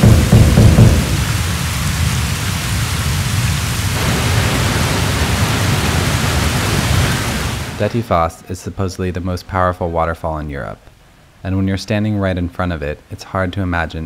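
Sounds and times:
deep rumble of water: 0:00.0 - 0:08.3
waterfall rushing: 0:00.0 - 0:08.3.

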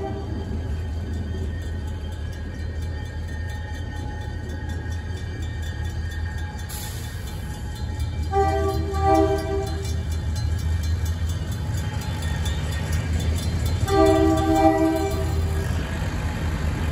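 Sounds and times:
locomotive air horn blasts: 0:00.0 - 0:00.5, 0:08.3 - 0:10.0, 0:13.8 - 0:15.7
crossing bell dinging: 0:00.0 - 0:16.9.

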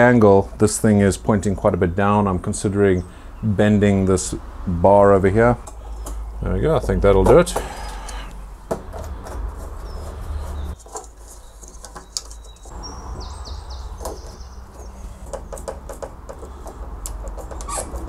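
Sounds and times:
bird chirping: 0:01.9 - 0:04.1, 0:05.6 - 0:16.8
small clicks and taps on fittings: 0:14.0 - 0:17.7.

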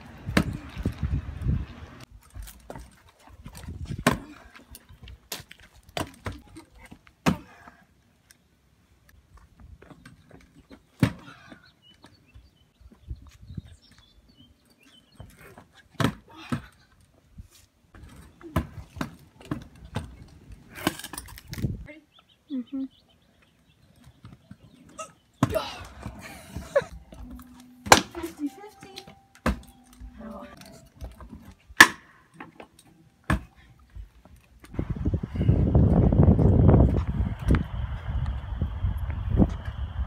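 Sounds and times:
scooter wheels rumbling on concrete: 0:24.0 - 0:28.4, 0:33.4 - 0:40.0.

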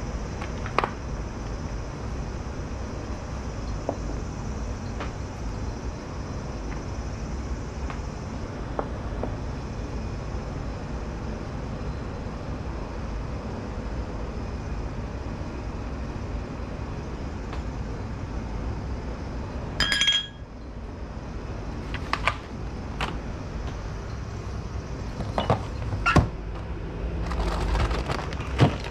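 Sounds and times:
ringing clink of kitchenware: 0:19.8 - 0:20.4.

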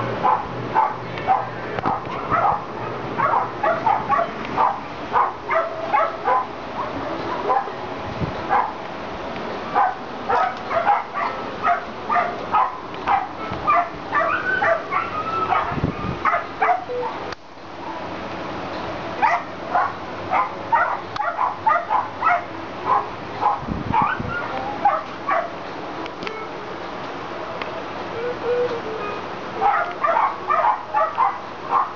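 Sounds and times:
dogs barking: 0:00.2 - 0:07.8, 0:08.4 - 0:08.8, 0:09.7 - 0:17.2, 0:19.2 - 0:25.6, 0:29.6 - 0:31.9.

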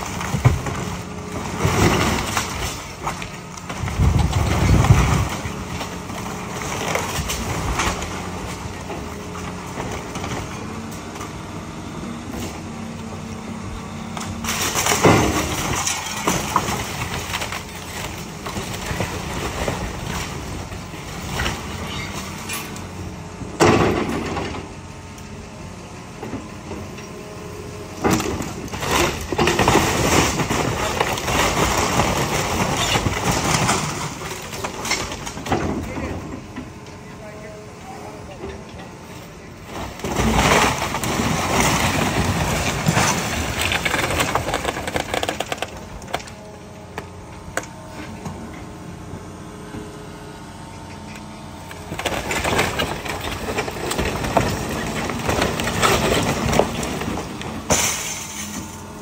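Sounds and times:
falling debris: 0:00.0 - 0:10.6, 0:14.3 - 0:22.8, 0:28.0 - 0:36.6, 0:39.7 - 0:46.3, 0:51.8 - 0:59.0
timber crashing and splintering: 0:00.0 - 0:10.7, 0:14.2 - 0:22.4, 0:28.0 - 0:36.5, 0:39.7 - 0:46.4, 0:51.8 - 0:59.0
excavator running: 0:00.0 - 0:59.0.

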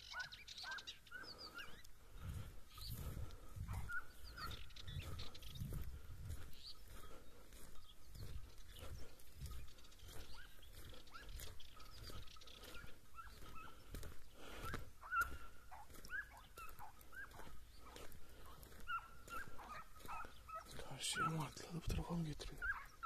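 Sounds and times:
hounds baying and yelping: 0:00.0 - 0:23.0.

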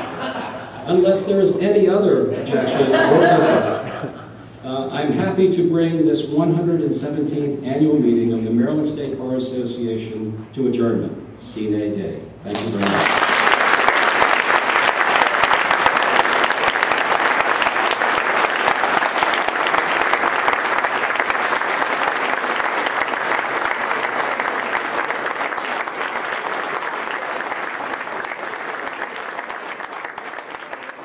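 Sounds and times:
audience applauding: 0:12.5 - 0:31.0.

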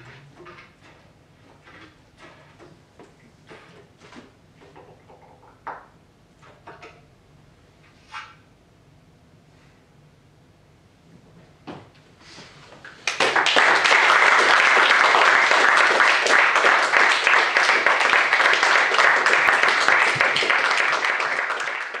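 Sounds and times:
audience applauding: 0:13.0 - 0:22.0.

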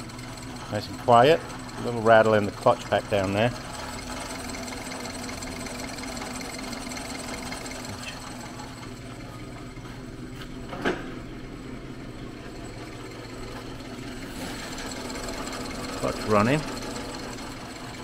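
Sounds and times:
metal lathe humming: 0:00.0 - 0:10.4, 0:11.3 - 0:18.0
short clunk: 0:10.7 - 0:11.3.

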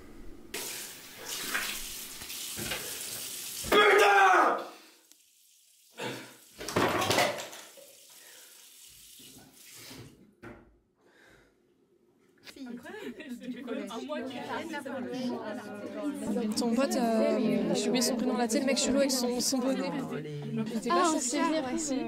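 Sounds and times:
water running from sink tap: 0:00.6 - 0:03.8, 0:05.1 - 0:10.1
person crying out: 0:03.7 - 0:04.6.

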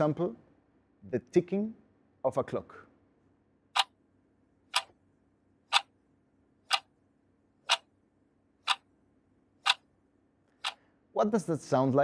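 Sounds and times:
clock ticking: 0:03.8 - 0:04.0, 0:04.7 - 0:05.0, 0:05.7 - 0:05.9, 0:06.7 - 0:06.9, 0:07.6 - 0:07.9, 0:08.6 - 0:08.9, 0:09.6 - 0:09.9.

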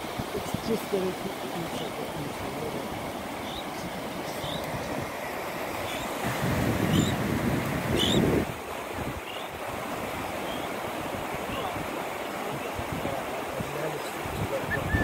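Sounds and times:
beach surf: 0:00.0 - 0:15.0
wind buffeting microphone: 0:00.0 - 0:15.0
bird chirping faintly: 0:05.8 - 0:06.2.

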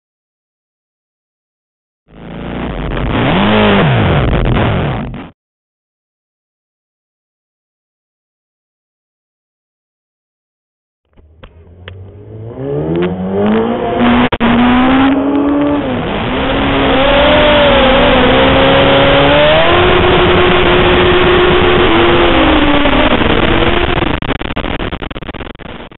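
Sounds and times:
motorcycle engine revving: 0:02.1 - 0:05.3, 0:11.1 - 0:24.4.

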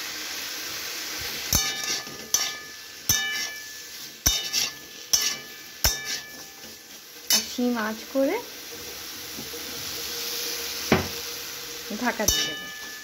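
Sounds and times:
frying hiss: 0:00.0 - 0:13.0
metal spatula knocking on wok: 0:01.5 - 0:06.7, 0:12.2 - 0:13.0.

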